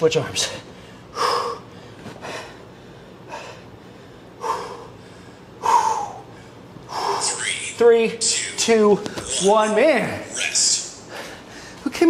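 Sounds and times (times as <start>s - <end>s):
man breathing hard: 0.8s - 7.5s, 11.1s - 11.9s.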